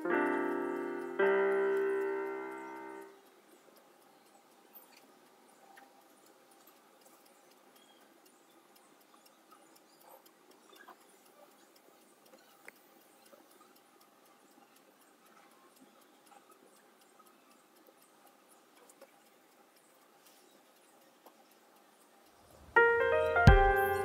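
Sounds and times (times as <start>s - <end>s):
tiny clicks: 0.0s - 24.0s.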